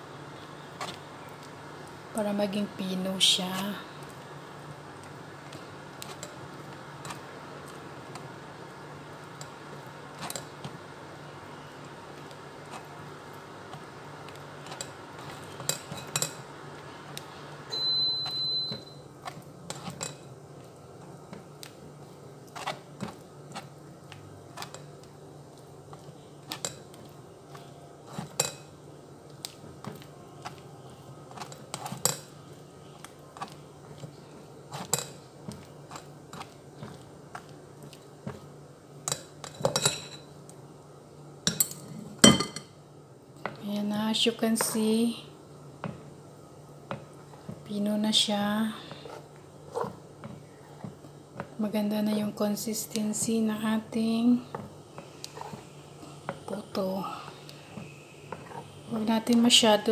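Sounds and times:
high beep: 17.7 - 19.0.

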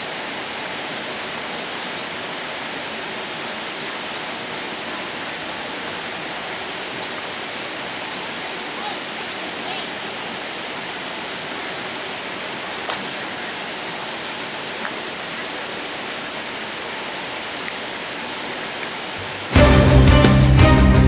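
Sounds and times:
rushing water: 0.0 - 21.0
faint clicks: 12.8 - 13.8, 17.5 - 17.8.

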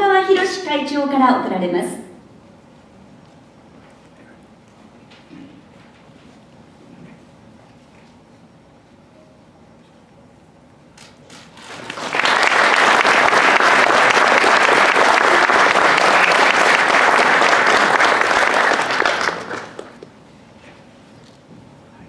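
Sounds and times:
audience applauding: 11.5 - 20.1.

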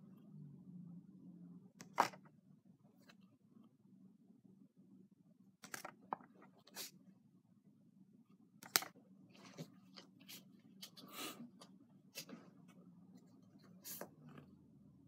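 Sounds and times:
faint low hum: 0.0 - 15.0
trading cards rustling and tapping: 5.6 - 6.5.

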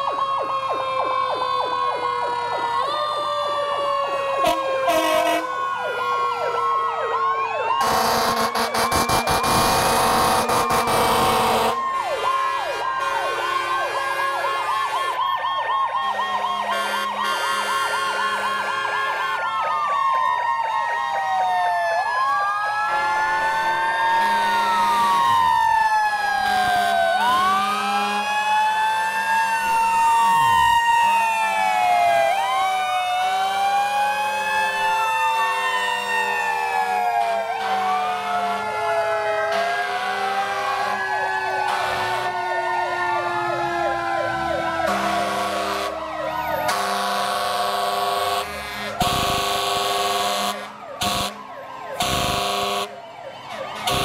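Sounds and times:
fire truck sirens wailing: 0.0 - 54.0
low horn blasts: 44.9 - 45.9.

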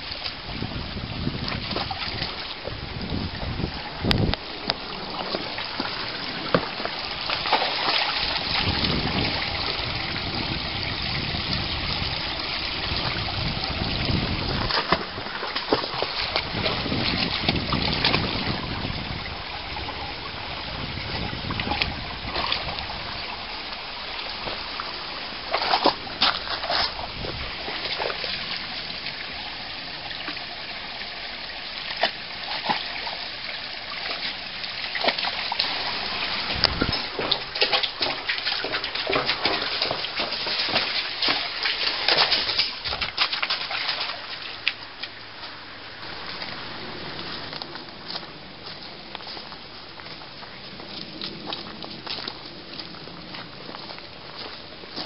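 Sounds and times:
stream trickling over rocks: 0.0 - 55.0
dog splashing in water: 4.9 - 9.9, 12.0 - 18.5, 25.4 - 28.4, 34.0 - 44.8.

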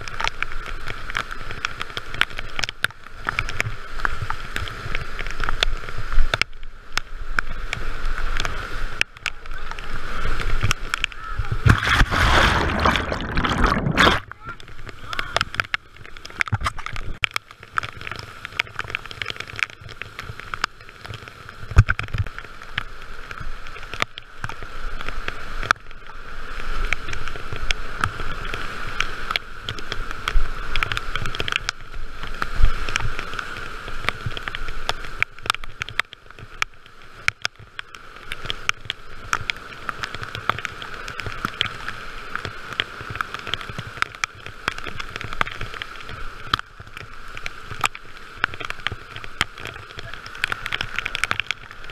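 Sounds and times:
paddle strokes and splashes: 7.4 - 51.9
whitewater rushing: 9.4 - 15.7.

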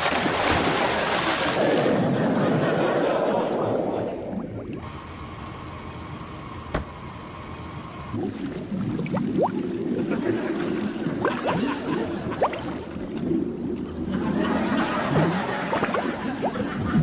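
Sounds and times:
low muffled rumble: 1.9 - 17.0
underwater bubbling: 3.5 - 5.6, 8.0 - 17.0.

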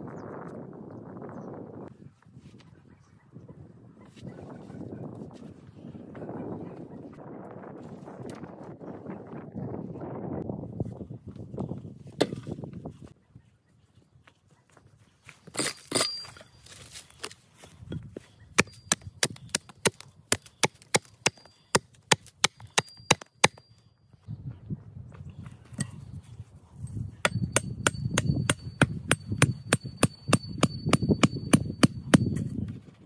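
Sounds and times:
hatchet chopping wood: 18.6 - 23.8, 27.2 - 32.7.

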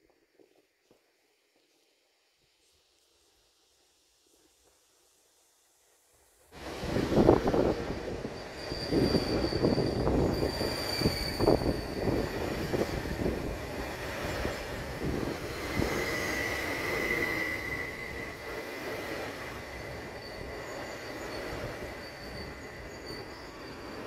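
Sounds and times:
lower squeal: 6.6 - 24.0
train wheels rumbling: 6.6 - 24.0
high metallic squeal: 7.2 - 24.0.

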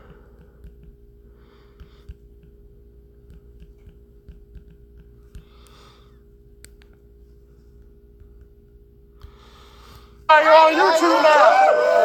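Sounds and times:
faint steady hum: 0.0 - 12.0
soft clicks: 6.6 - 7.0
short breath: 9.2 - 10.2.

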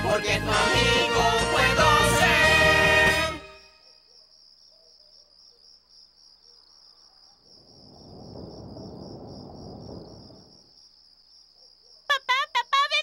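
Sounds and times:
crickets chirping: 3.5 - 13.0.

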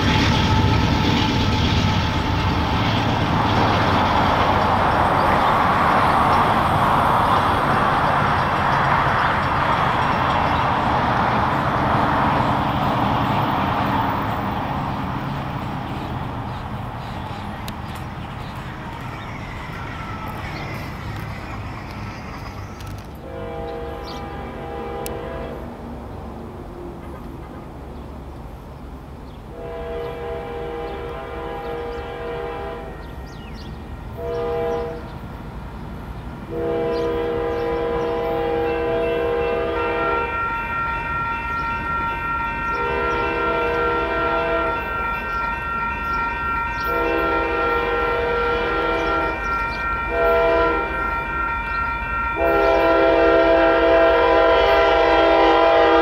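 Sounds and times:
train air horn: 0.0 - 3.0, 18.9 - 25.8, 29.5 - 35.2, 36.5 - 56.0
crossing warning bell ringing: 17.6 - 23.1, 32.8 - 35.0, 37.0 - 56.0.

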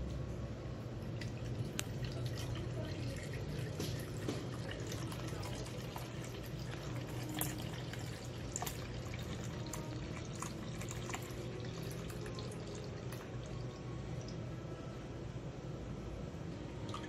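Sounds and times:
cream pouring into plastic pitcher: 1.1 - 14.4
drips and plops: 1.1 - 14.5.

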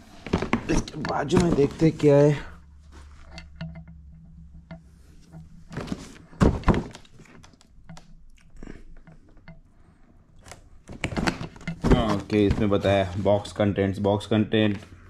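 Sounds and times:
heavy thumps: 0.1 - 2.7, 3.3 - 7.1, 10.9 - 13.2.

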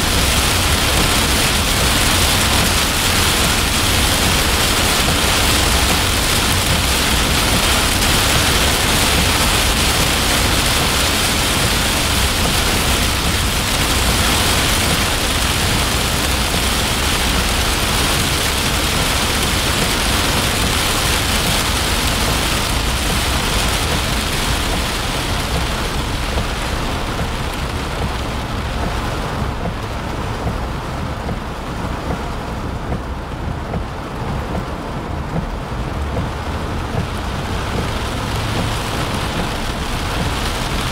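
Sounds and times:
heavy rain on car windshield: 0.0 - 40.9
low road rumble: 0.0 - 40.9.

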